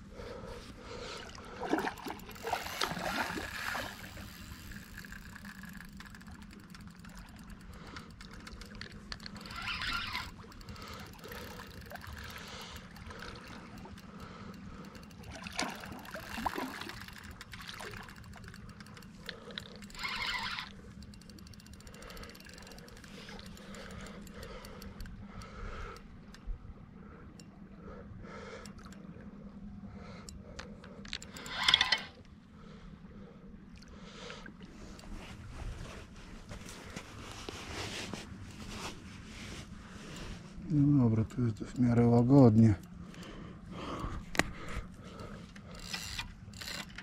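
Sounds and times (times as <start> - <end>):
water splashing: 1.1 - 5.7, 15.2 - 20.6
river water washing: 1.2 - 5.8.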